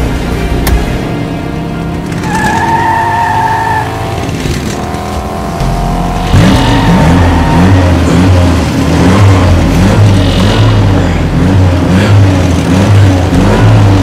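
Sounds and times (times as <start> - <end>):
car tyres squealing: 2.1 - 14.0
engine revving hard: 3.7 - 14.0.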